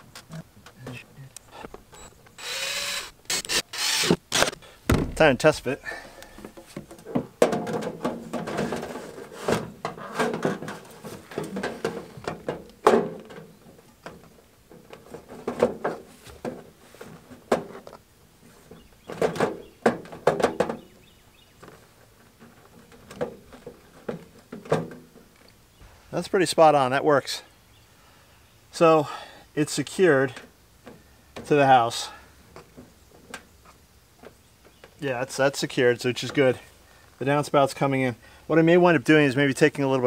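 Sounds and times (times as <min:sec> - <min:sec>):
scattered thunks: 0:04.9 - 0:05.6.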